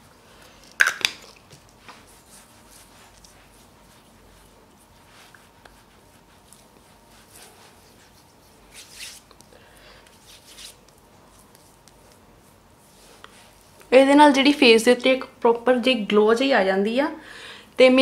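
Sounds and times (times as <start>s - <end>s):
fingertips rubbing skin: 1.5s - 13.9s
brush strokes: 1.6s - 13.9s.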